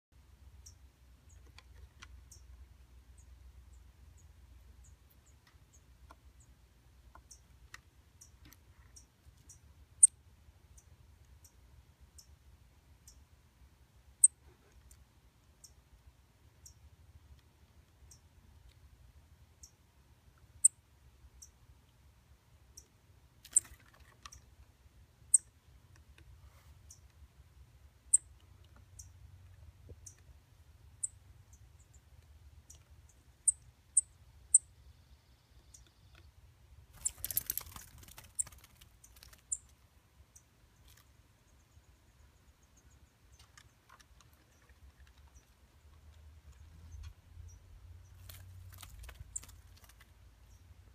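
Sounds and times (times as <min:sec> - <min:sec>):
fledgling bird cheeping: 0:25.3 - 0:25.5, 0:28.1 - 0:28.4, 0:32.7 - 0:36.3, 0:37.0 - 0:39.7.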